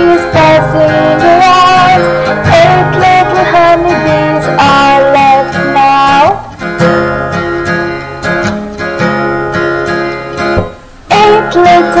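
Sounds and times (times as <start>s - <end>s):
person singing: 0.0s - 6.5s, 11.1s - 12.0s
strummed guitar chords: 0.0s - 12.0s.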